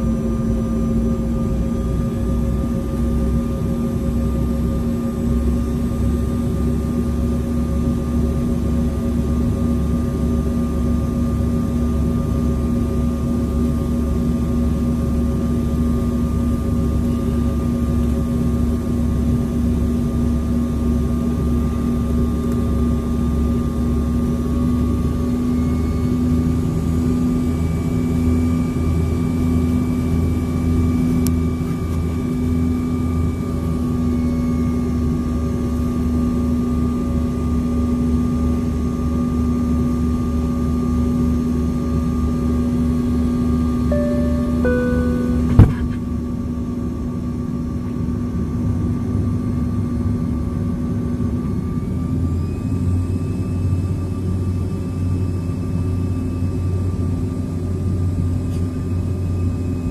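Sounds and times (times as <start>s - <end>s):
faint high whine: 43.9s - 46.4s.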